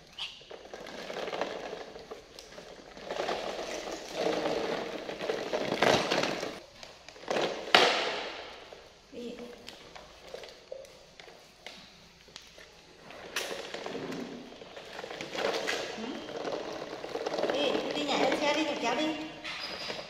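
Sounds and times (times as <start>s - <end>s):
toy truck rolling on tiled floor: 0.0s - 8.8s, 13.0s - 20.0s.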